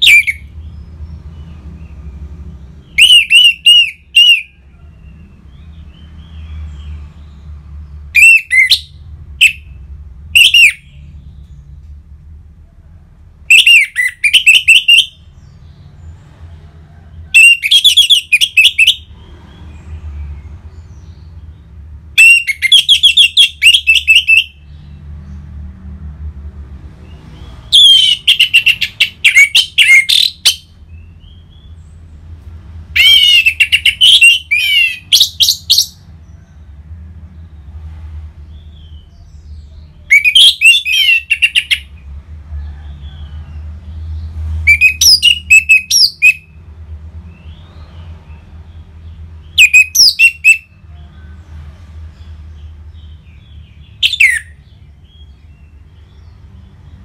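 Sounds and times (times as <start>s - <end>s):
thrush singing whistled phrases: 0.0s - 0.5s, 2.9s - 4.6s, 8.2s - 11.0s, 13.5s - 15.2s, 22.2s - 24.6s, 27.7s - 30.7s, 33.0s - 36.0s, 40.1s - 41.9s, 44.7s - 46.6s, 49.6s - 50.8s, 54.0s - 54.6s.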